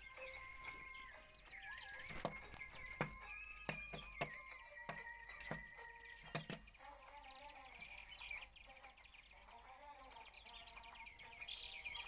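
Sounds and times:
birds chirping rapidly: 0.0 - 12.0
sharp clicks: 2.1 - 6.8.

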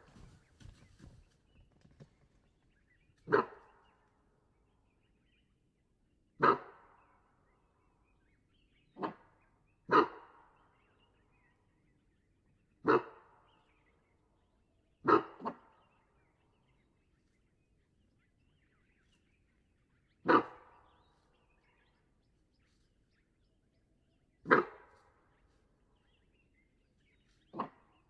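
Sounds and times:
antelope alarm barks: 3.2 - 4.3, 6.4 - 7.9, 8.7 - 11.6, 12.7 - 14.4, 15.0 - 16.6, 19.6 - 22.1, 24.3 - 26.3, 27.2 - 28.0.

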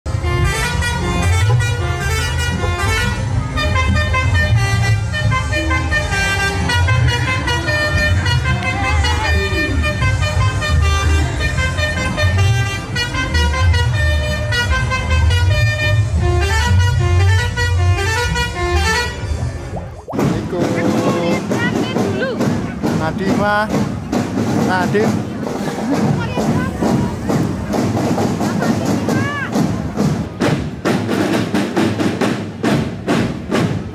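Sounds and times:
multi-tone truck horn playing a tune: 0.1 - 19.6.

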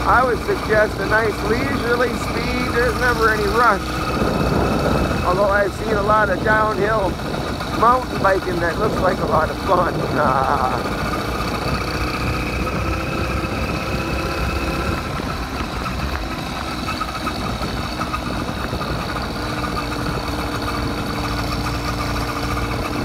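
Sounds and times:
small motorbike engine running: 0.0 - 23.0
tyres on gravel rumble: 0.0 - 23.0.

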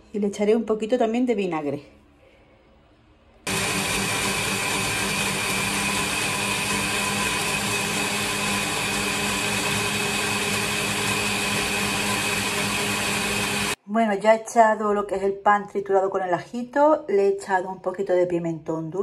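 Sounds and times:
blender running: 3.5 - 13.8.

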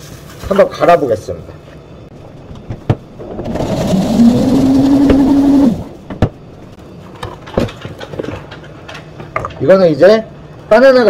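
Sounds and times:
blender motor running: 3.4 - 5.9.

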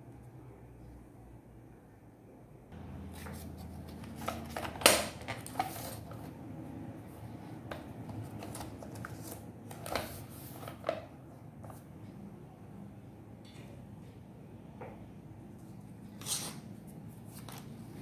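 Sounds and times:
steady low hum: 0.0 - 9.7.

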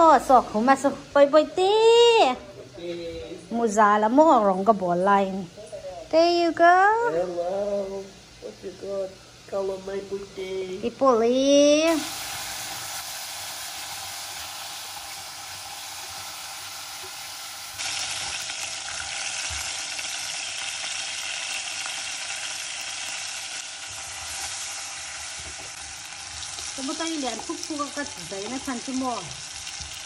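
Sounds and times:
chicken wings sizzling in oil: 8.2 - 30.0.

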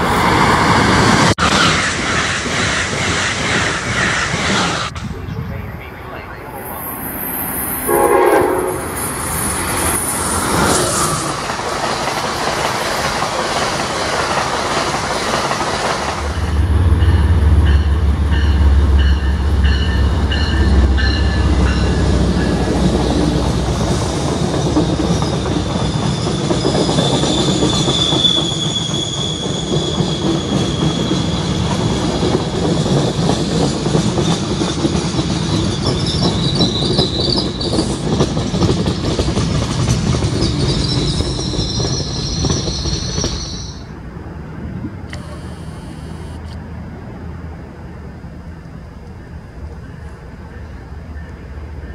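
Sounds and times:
diesel locomotive rumble: 0.0 - 51.9
train wheels clattering: 8.6 - 43.8
high wheel squeal: 24.5 - 32.2, 35.5 - 38.0, 40.4 - 43.9.

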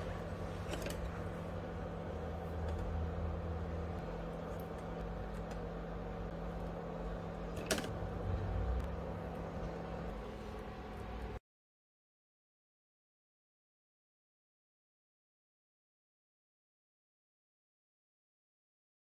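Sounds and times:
low mechanical hum: 0.0 - 11.4.

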